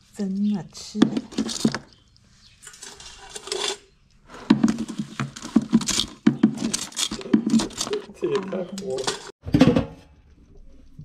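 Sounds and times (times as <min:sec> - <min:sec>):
metal tongs clattering in cooler: 0:01.2 - 0:01.8, 0:02.6 - 0:03.9, 0:04.6 - 0:09.3.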